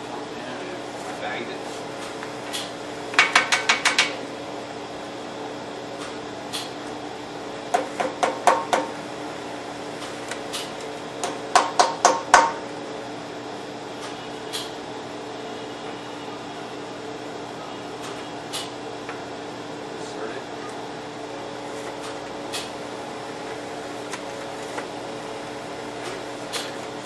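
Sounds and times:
steady machine hum: 0.0s - 27.0s
toner cartridge knocking: 3.1s - 4.2s, 7.7s - 9.0s, 11.2s - 12.6s.

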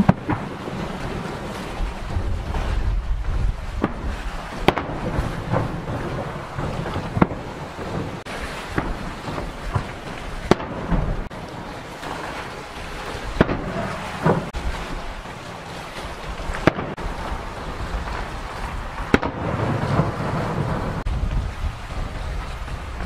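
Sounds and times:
low rumbling echo: 16.3s - 23.0s.

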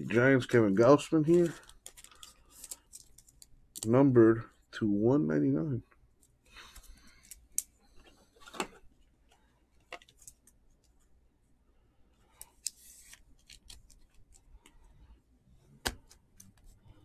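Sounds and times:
cards rustling: 0.9s - 4.0s, 12.3s - 14.8s.

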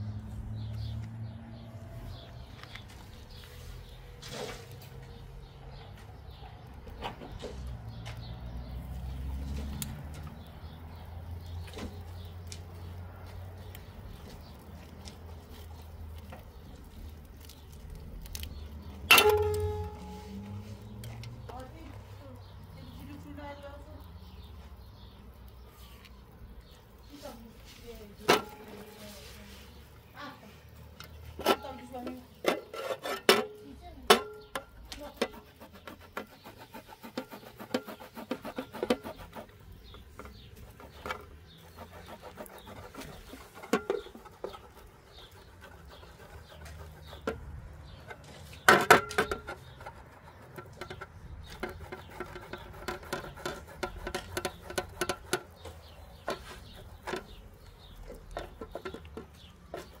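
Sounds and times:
sausage rasping on grater: 35.0s - 47.3s, 51.5s - 58.9s
grater knocking on metal tray: 50.5s - 55.6s.

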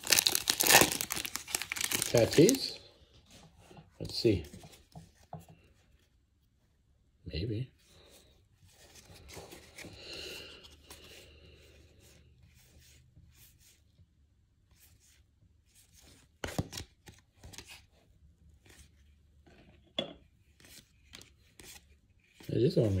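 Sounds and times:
cards sliding and rubbing: 20.5s - 22.5s.

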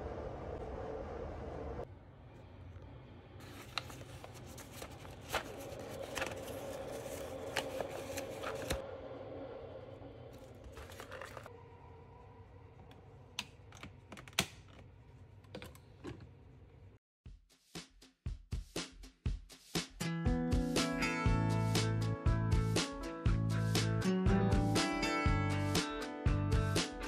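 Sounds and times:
paper bag rustling: 3.4s - 8.8s, 10.3s - 11.5s.

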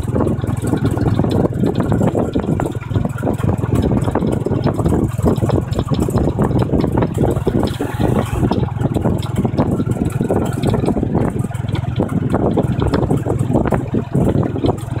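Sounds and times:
motorbike engine running: 0.0s - 15.0s
wind and road noise: 0.0s - 15.0s.

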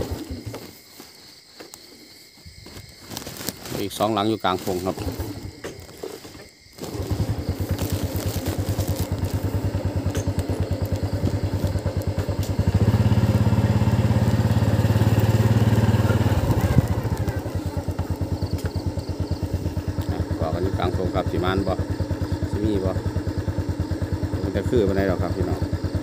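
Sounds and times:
small motorcycle engine running: 4.6s - 6.2s, 6.8s - 26.0s.

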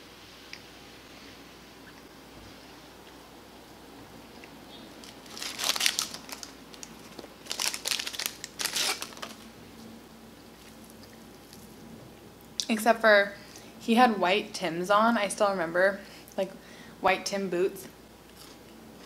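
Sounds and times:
paper wrapper crinkling: 5.0s - 9.5s.

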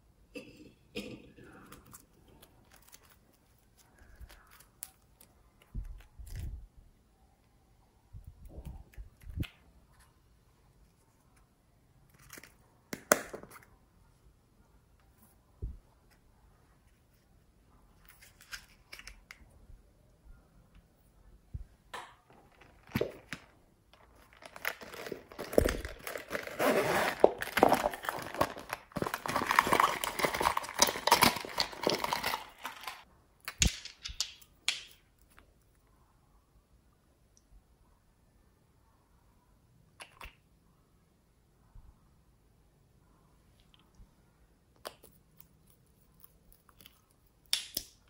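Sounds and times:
plastic crinkling and crackling: 22.3s - 33.1s.

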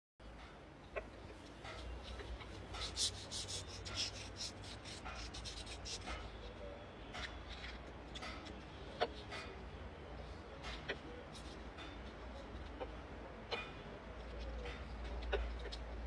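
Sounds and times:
nail file rasping on claws: 1.6s - 6.3s.

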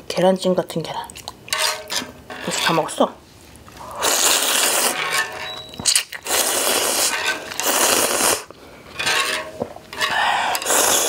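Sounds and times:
person slurping noodles: 3.8s - 5.1s, 6.2s - 8.5s, 10.0s - 11.0s.

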